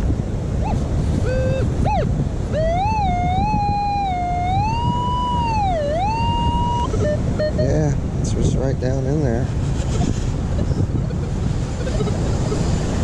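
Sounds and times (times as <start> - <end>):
metal detector warbling tone: 0.6 - 8.0, 11.0 - 12.6
metal detector beeps: 2.6 - 7.9.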